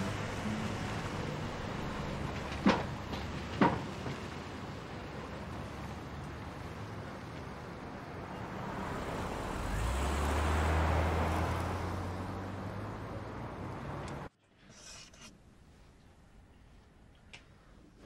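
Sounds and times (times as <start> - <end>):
car driving past: 8.2 - 14.3.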